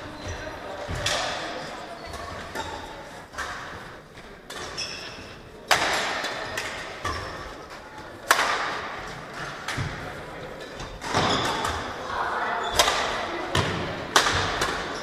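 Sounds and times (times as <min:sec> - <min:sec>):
racket hitting shuttlecock: 0:05.7 - 0:07.4, 0:08.2 - 0:10.0, 0:12.7 - 0:15.0.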